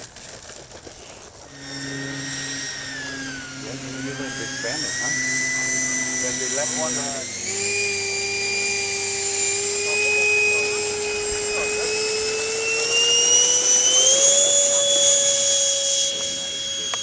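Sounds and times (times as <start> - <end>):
electric ducted fan whining: 0.0 - 17.0.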